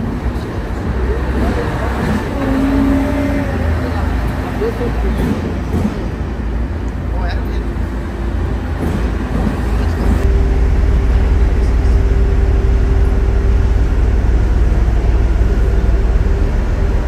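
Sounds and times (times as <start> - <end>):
train rumble: 0.0 - 17.0
machine hum: 10.2 - 17.0.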